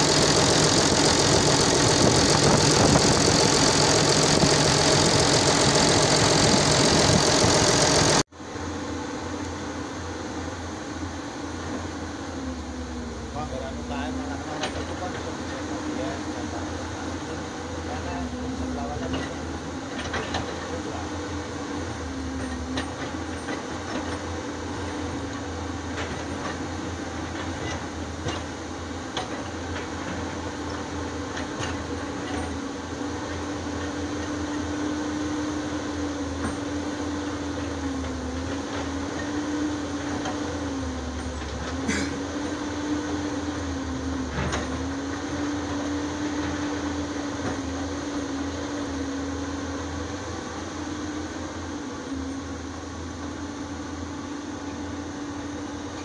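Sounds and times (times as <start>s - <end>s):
excavator engine and hydraulic whine: 0.0s - 56.0s.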